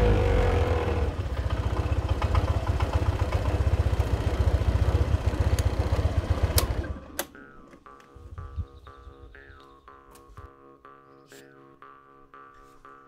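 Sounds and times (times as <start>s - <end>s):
motorcycle engine idling: 0.0s - 7.2s.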